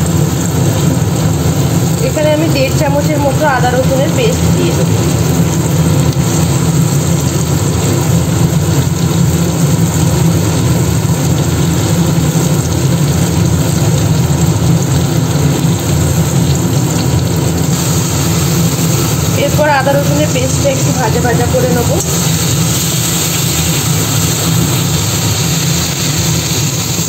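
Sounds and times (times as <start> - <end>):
food frying hiss: 0.0 - 27.0
steady low hum: 14.9 - 27.0.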